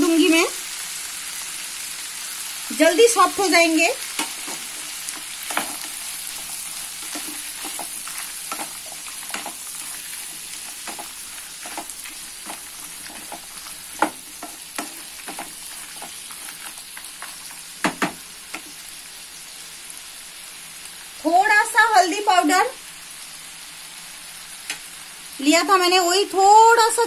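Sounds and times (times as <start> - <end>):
vegetables sizzling in oil: 0.0 - 27.0
wooden spatula scraping pan: 4.2 - 17.4.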